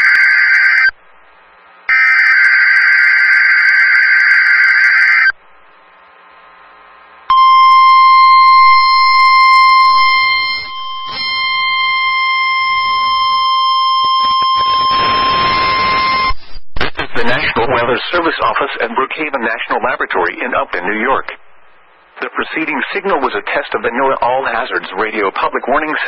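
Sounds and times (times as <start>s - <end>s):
steady warning alarm tone: 1.9s - 5.4s, 7.3s - 16.4s
data burst tones: 7.3s - 17.4s.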